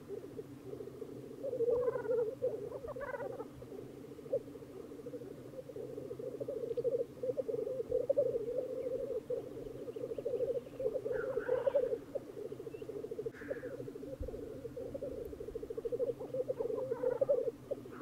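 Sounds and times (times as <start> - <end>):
grouse bubbling cooing song: 0.0 - 18.0.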